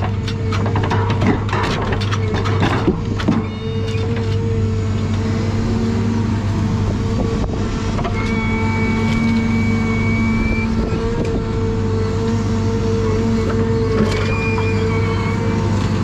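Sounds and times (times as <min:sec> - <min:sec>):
diesel engine humming: 0:00.0 - 0:16.0
hydraulic crane whine: 0:00.0 - 0:16.0.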